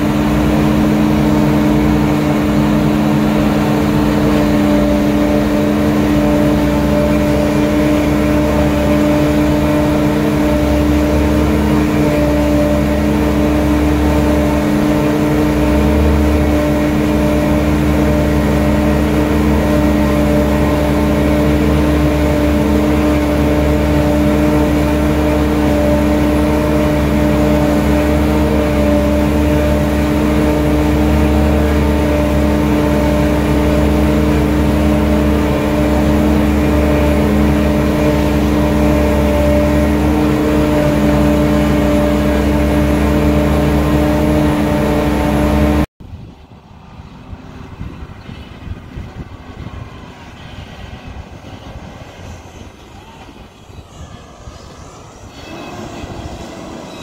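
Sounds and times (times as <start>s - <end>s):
steady machine hum: 0.0s - 57.0s
low rumble: 46.0s - 57.0s.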